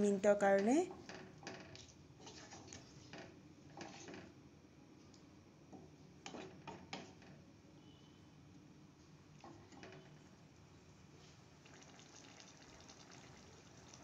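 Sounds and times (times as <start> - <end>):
spatula scraping metal pan: 2.2 - 3.0.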